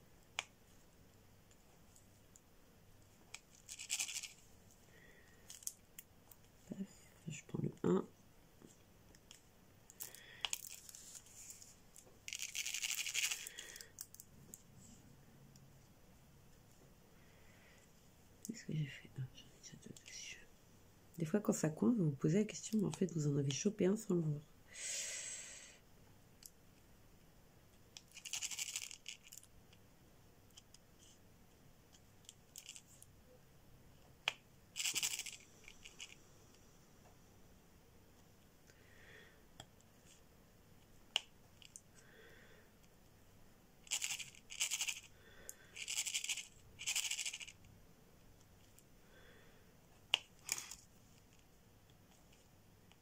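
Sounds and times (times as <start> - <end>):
pen scraping plastic beads: 3.3 - 4.4, 9.9 - 14.3, 28.0 - 29.5, 31.9 - 33.1, 34.8 - 36.2, 43.8 - 47.7
plastic rattling and rubbing: 3.3 - 4.4, 10.5 - 14.6, 34.8 - 36.2.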